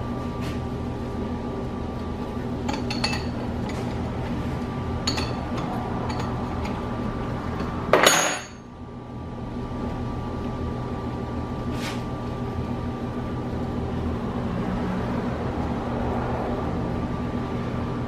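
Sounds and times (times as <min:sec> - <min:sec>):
steady low hum: 0:00.0 - 0:18.0
metal clinks and taps: 0:02.7 - 0:03.9, 0:05.0 - 0:06.8
metallic clank: 0:05.0 - 0:06.8, 0:07.6 - 0:08.7.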